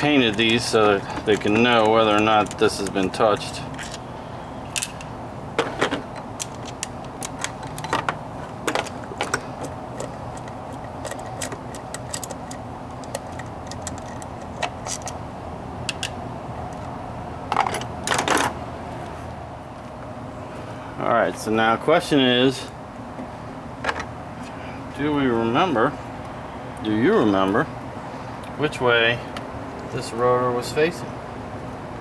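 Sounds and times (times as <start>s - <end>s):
tool clicking and clinking on metal: 0.0s - 4.0s, 4.8s - 15.2s
low background hum: 0.0s - 32.0s.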